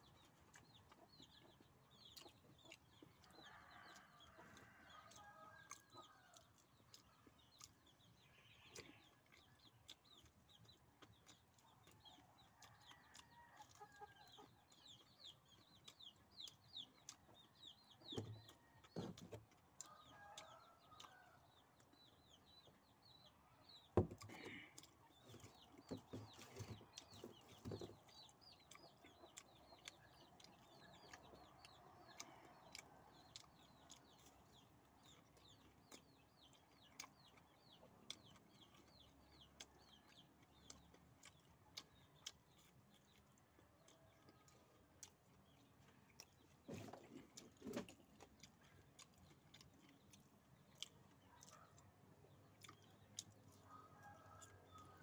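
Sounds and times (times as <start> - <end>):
chickens clucking: 0.0 - 55.0.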